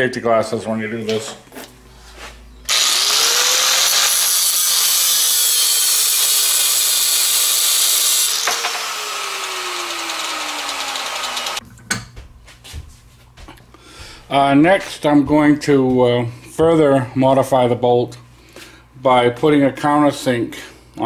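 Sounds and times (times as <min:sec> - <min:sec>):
angle grinder cutting steel: 0:02.7 - 0:11.6.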